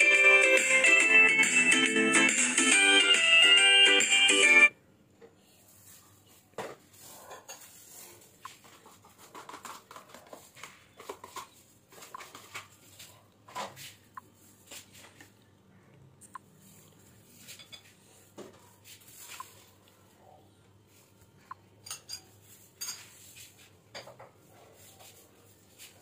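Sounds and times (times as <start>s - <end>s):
dishes and utensils clinking: 17.4s - 18.0s, 21.8s - 24.4s.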